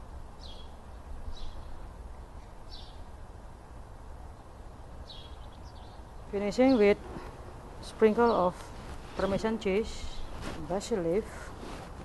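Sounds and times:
birds chirping: 0:04.3 - 0:11.2.

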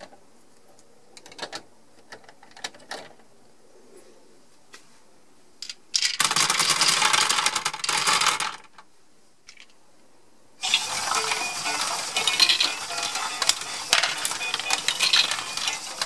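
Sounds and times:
plastic balls rattling into a bin: 0:05.6 - 0:08.8, 0:10.6 - 0:16.0.

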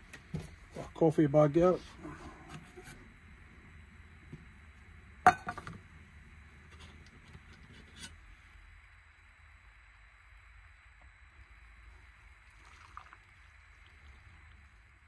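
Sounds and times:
faint steady hiss: 0:00.0 - 0:15.0
cook pot and lid clinking: 0:05.3 - 0:05.7.

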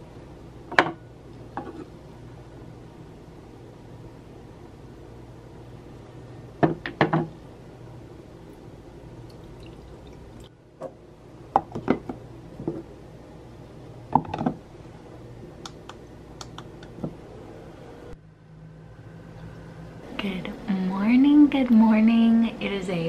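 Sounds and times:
faint hum: 0:00.0 - 0:23.0
water drips: 0:09.2 - 0:10.5.

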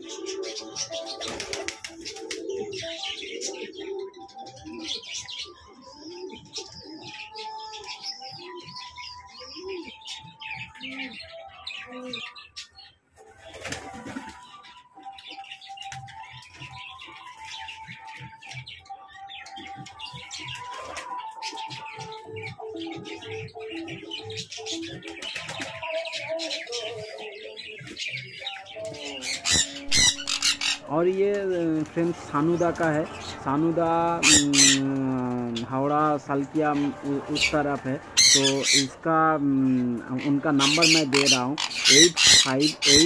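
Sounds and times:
pigeons cooing: 0:00.0 - 0:43.0
small birds chirping: 0:00.0 - 0:43.0
wings flapping: 0:00.2 - 0:02.7, 0:13.2 - 0:14.6, 0:25.0 - 0:25.9, 0:29.1 - 0:35.7.

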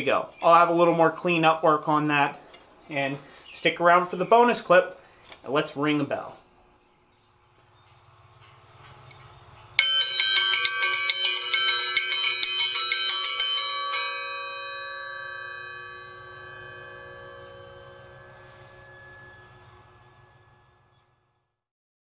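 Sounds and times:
triangle ringing out: 0:06.4 - 0:21.2
triangle struck rapidly: 0:07.3 - 0:20.9.

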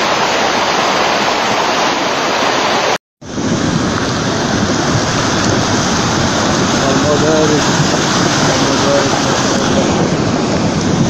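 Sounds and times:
floodwater rushing: 0:00.0 - 0:11.0.

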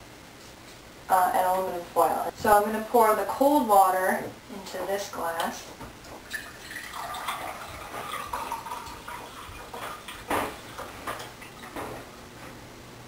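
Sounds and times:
water pouring into a glass: 0:06.3 - 0:11.8.

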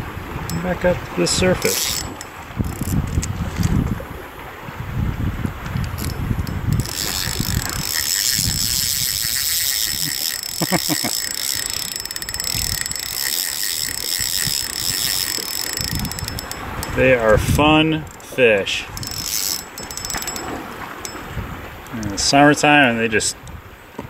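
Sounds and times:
low wind: 0:00.0 - 0:24.0
water noise: 0:00.0 - 0:24.0
fishing reel ratcheting: 0:00.4 - 0:00.7, 0:01.3 - 0:03.7, 0:05.8 - 0:17.4, 0:18.1 - 0:22.3.

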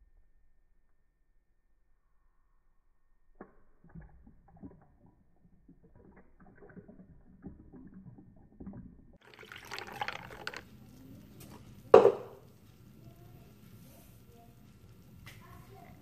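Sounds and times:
milk pouring into glass: 0:03.4 - 0:13.2.

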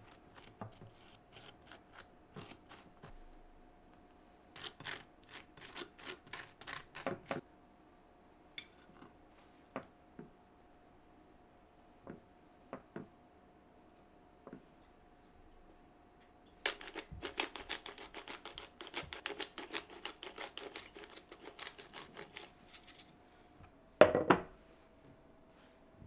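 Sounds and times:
pepper grinder cracking peppercorns: 0:04.6 - 0:07.1, 0:16.6 - 0:22.8
ceramic dish set on countertop: 0:24.0 - 0:24.6.

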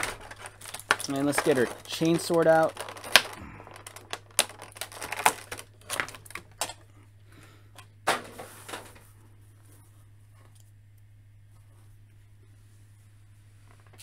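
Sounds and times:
plastic rustle: 0:00.0 - 0:06.8
plastic blister tray crackling: 0:00.0 - 0:06.9
low hum: 0:02.8 - 0:14.0.

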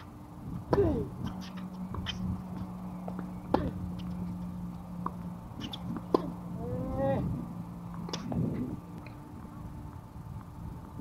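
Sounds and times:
wind rumbling on microphone: 0:00.0 - 0:11.0
shoe squeak: 0:01.2 - 0:02.3, 0:05.6 - 0:06.0
tennis ball struck with racket: 0:05.0 - 0:06.4.

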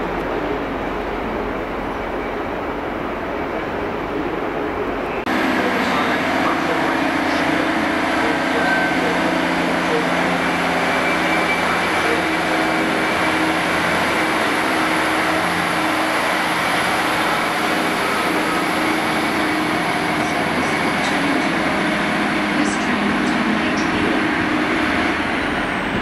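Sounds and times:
diesel engine running: 0:05.2 - 0:26.0
wheel-on-rail noise: 0:05.3 - 0:26.0.

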